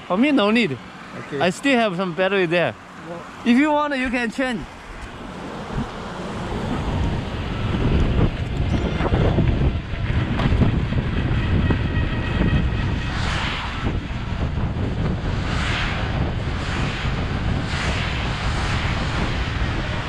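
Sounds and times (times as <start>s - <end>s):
wind buffeting microphone: 4.0s - 20.0s.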